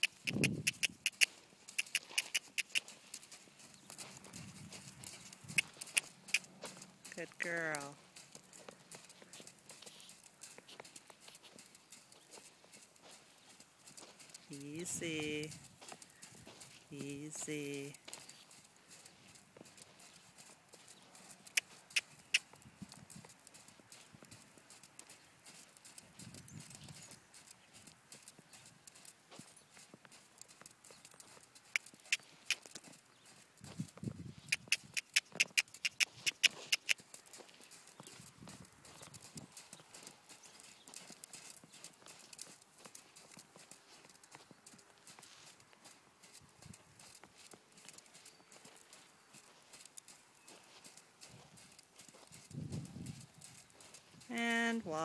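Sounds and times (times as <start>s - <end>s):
sharp clicks: 0.0s - 12.5s, 21.4s - 23.6s, 30.4s - 32.9s, 34.5s - 43.7s
hooves thudding in sand: 0.0s - 55.0s.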